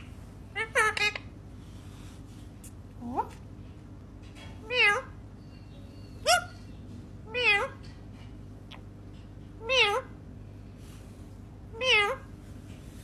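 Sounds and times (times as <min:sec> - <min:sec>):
parakeet mimicking cat meows: 0:04.6 - 0:05.2, 0:07.3 - 0:07.8, 0:09.6 - 0:10.2, 0:11.7 - 0:12.3.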